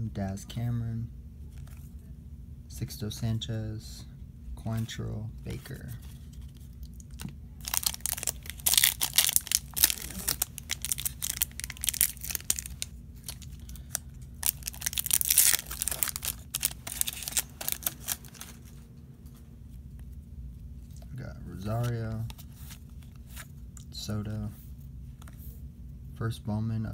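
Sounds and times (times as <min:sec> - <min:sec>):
foil wrapper crinkling and tearing: 0:06.4 - 0:18.8.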